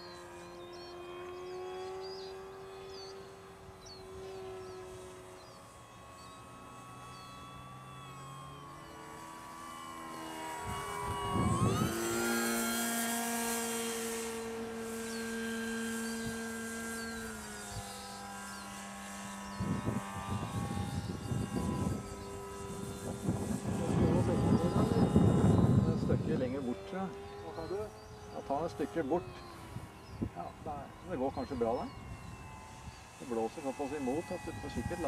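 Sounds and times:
electric motor and propeller whining: 0:00.0 - 0:35.0
wind rumble on microphone: 0:10.6 - 0:12.9, 0:19.5 - 0:27.9, 0:28.7 - 0:33.2.

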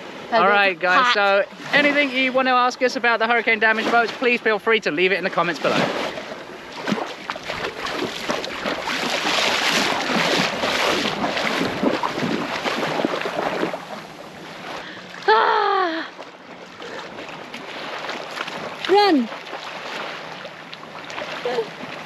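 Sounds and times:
sea water splashing: 0:00.0 - 0:22.0
woman shouting: 0:00.3 - 0:01.2, 0:15.3 - 0:16.1, 0:18.9 - 0:19.3, 0:21.5 - 0:21.7
wind buffeting microphone: 0:05.8 - 0:14.2.

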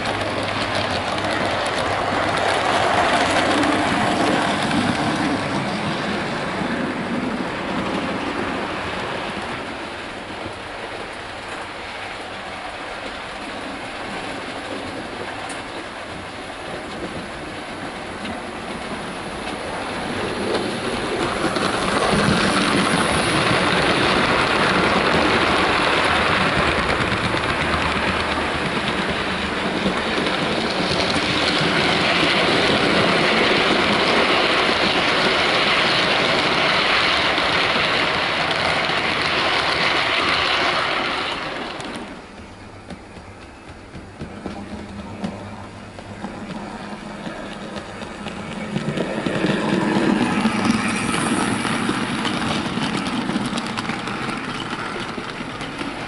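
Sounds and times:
model train wheels rattling: 0:46.0 - 0:56.0.

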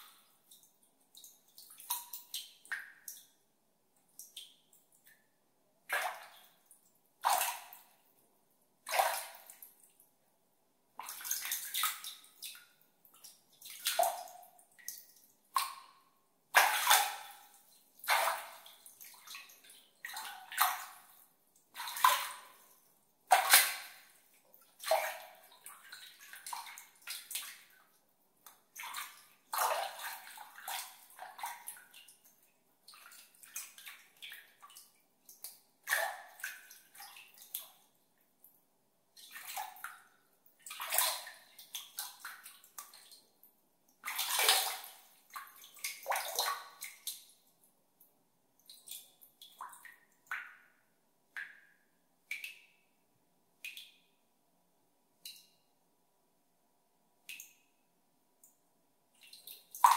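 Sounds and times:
water dripping: 0:00.0 - 0:03.4, 0:04.0 - 0:08.2, 0:08.8 - 0:10.1, 0:11.0 - 0:38.6, 0:39.2 - 0:52.9, 0:53.6 - 0:54.2, 0:55.2 - 0:55.7, 0:57.2 - 0:57.8, 0:58.4 - 0:58.6, 0:59.2 - 0:59.9
water splashing by hand: 0:16.6 - 0:17.4, 0:18.0 - 0:21.1, 0:21.8 - 0:22.7, 0:23.3 - 0:24.2, 0:44.0 - 0:47.2.

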